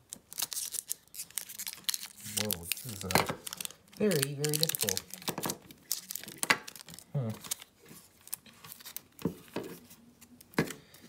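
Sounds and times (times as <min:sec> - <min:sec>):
plastic film crinkling and tearing: 0:00.0 - 0:09.2.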